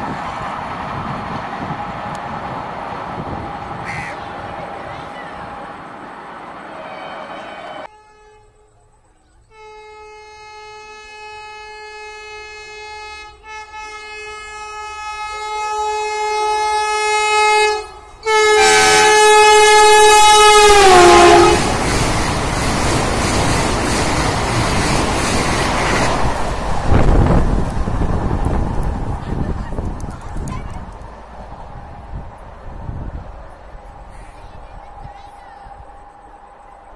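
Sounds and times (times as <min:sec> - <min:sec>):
train rushing and rumbling: 0:00.0 - 0:07.9, 0:12.4 - 0:36.9
train horn blast: 0:03.8 - 0:04.3, 0:06.7 - 0:08.7, 0:09.5 - 0:21.7.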